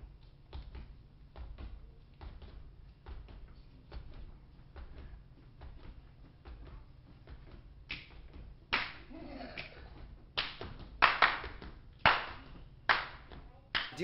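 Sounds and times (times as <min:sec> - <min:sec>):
hand claps and slaps: 0:07.2 - 0:14.0.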